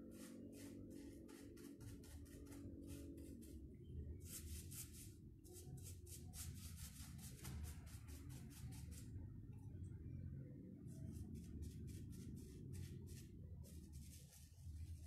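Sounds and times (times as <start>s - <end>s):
paintbrush scrubbing on wood: 0.0s - 3.5s.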